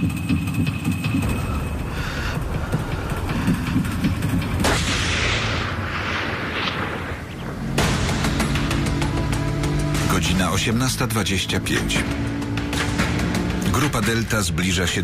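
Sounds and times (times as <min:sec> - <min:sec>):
low rumbling drone: 0:00.0 - 0:14.0
rushing noise: 0:01.2 - 0:08.9.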